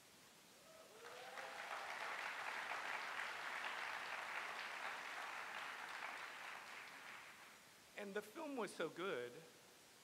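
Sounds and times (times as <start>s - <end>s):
audience applauding: 0.9s - 7.6s.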